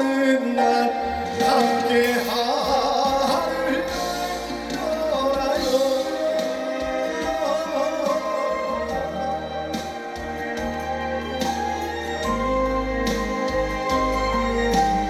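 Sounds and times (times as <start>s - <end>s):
man singing into microphone: 0.0s - 10.2s
instrumental accompaniment: 0.0s - 15.0s.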